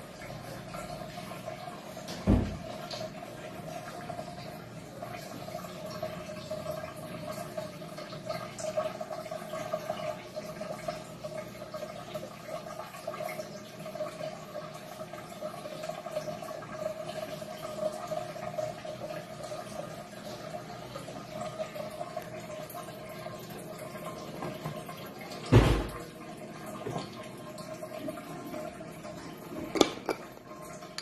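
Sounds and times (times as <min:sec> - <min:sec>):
aquarium water bubbling: 0:00.0 - 0:31.0.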